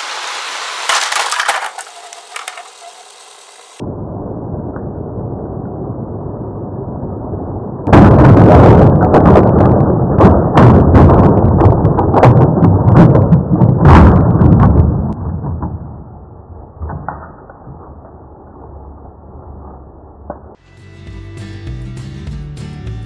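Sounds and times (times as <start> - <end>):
plastic toy trains crashing: 0.0 - 3.8.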